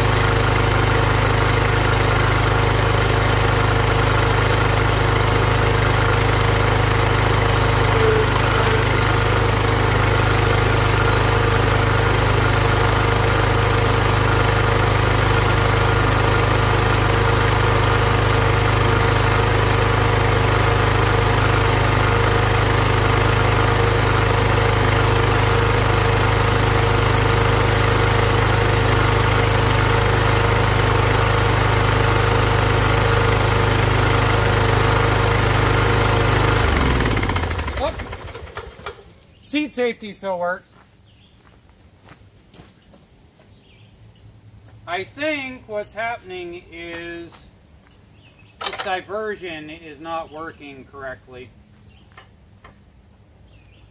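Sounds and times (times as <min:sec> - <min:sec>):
mower engine running: 0:00.0 - 0:40.0, 0:48.6 - 0:51.1.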